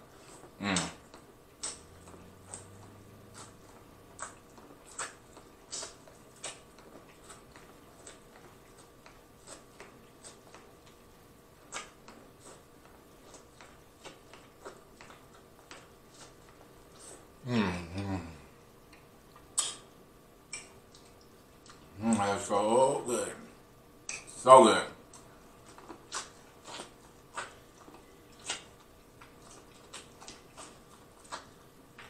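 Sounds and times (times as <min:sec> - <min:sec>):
corn on the cob being bitten and chewed: 0:00.1 - 0:17.3, 0:18.9 - 0:19.9, 0:25.1 - 0:32.0.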